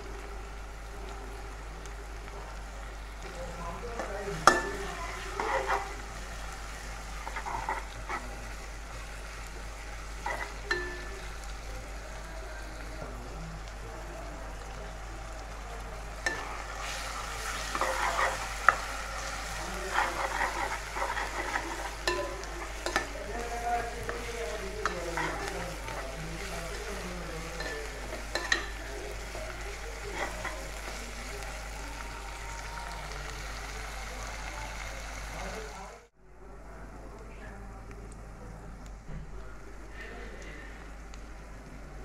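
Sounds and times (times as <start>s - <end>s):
onions sizzling in oil: 0.0s - 36.1s, 38.8s - 42.0s
spatula stirring and scraping pan: 2.6s - 13.8s, 14.6s - 32.7s.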